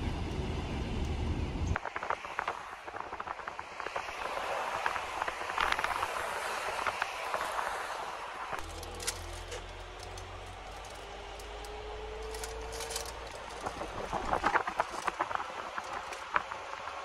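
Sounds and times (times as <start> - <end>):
road and engine rumble: 0.0 - 17.0
clicks and rattles: 8.6 - 16.6.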